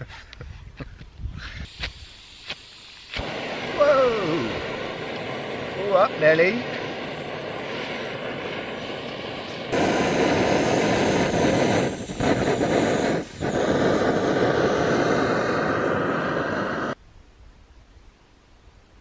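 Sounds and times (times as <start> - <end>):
gas stove hissing: 1.4 - 17.0.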